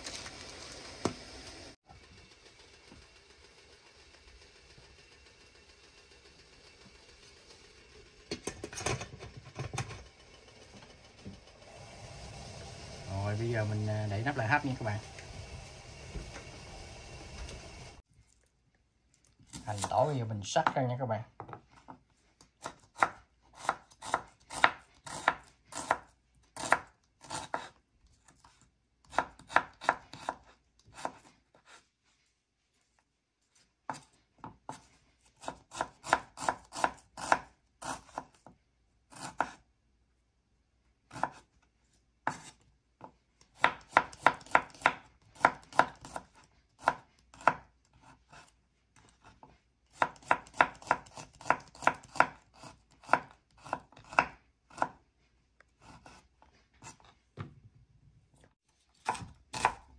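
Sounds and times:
knife chopping on cutting board: 0:22.6 - 0:27.8, 0:29.1 - 0:31.8, 0:39.1 - 0:39.6, 0:41.1 - 0:41.4, 0:42.2 - 0:48.5, 0:49.3 - 0:55.0, 0:59.0 - 0:59.9.

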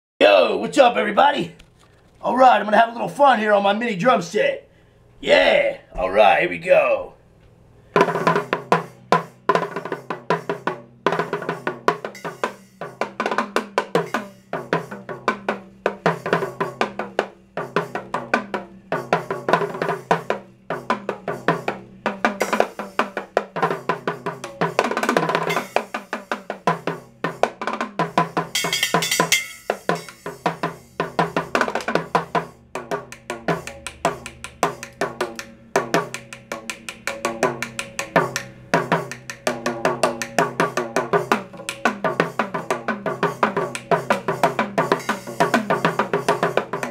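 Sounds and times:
cymbal wash: 0:07.2 - 0:46.9
drum stick strokes on small drums: 0:12.0 - 0:27.0, 0:28.0 - 0:46.9.

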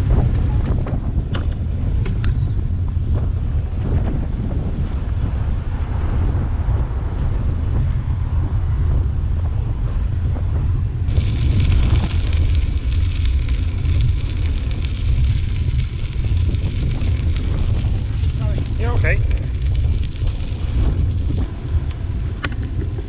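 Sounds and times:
bicycle tyre noise: 0:00.0 - 0:23.0
wind rumbling on microphone: 0:00.0 - 0:23.0
tyres hissing on gravel: 0:11.1 - 0:21.8.

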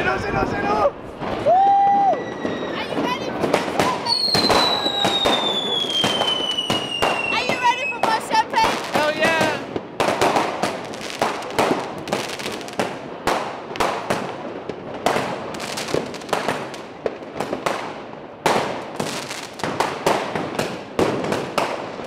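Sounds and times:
fireworks and firecrackers banging: 0:00.0 - 0:22.0.

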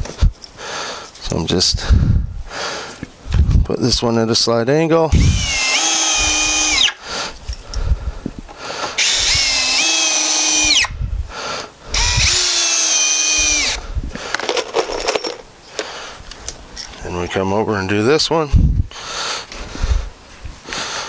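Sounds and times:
cordless drill motor whine: 0:05.1 - 0:07.0, 0:09.0 - 0:11.0, 0:11.9 - 0:13.8
knocks and handling noise: 0:14.2 - 0:17.0.

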